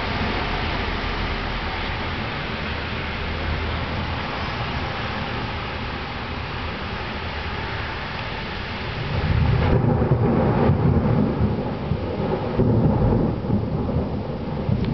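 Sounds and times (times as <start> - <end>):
heavy rain hissing: 0.0 - 14.7
low roll of thunder: 8.9 - 14.9.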